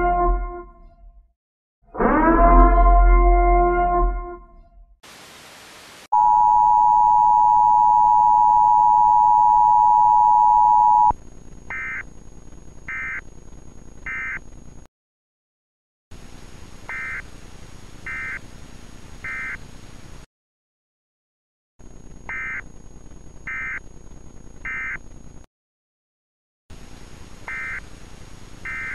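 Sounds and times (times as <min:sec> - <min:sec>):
two-tone alert drone: 0:02.0 - 0:04.3
short high beeps: 0:06.2 - 0:11.1.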